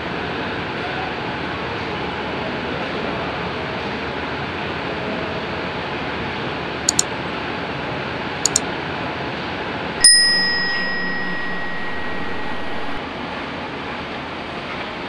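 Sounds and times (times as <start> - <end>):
notification bell ding: 10.0 - 13.0.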